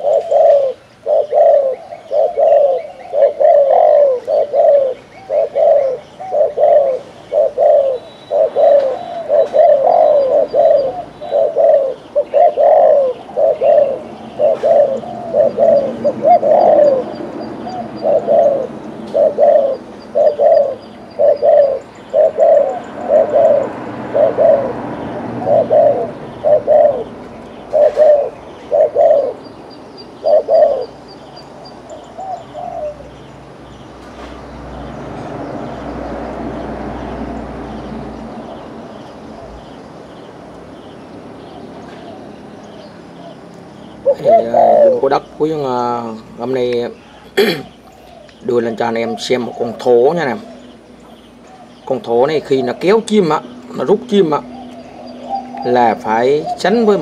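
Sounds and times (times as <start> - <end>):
dove cooing: 0.0 - 33.4, 34.8 - 57.0.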